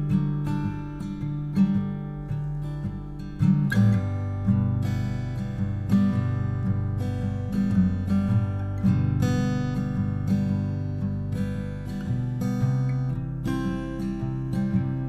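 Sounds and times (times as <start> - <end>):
strummed acoustic guitar: 0.0 - 15.0.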